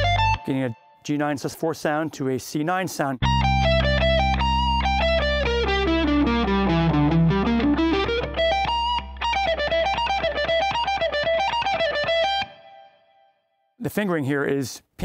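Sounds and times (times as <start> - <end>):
overdriven electric guitar lead: 0.0 - 0.9, 3.2 - 13.1.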